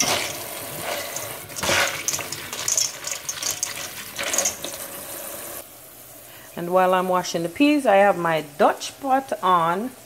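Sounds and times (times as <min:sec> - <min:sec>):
beans clattering in metal colander: 0:00.0 - 0:05.0
tap water running: 0:00.0 - 0:05.6.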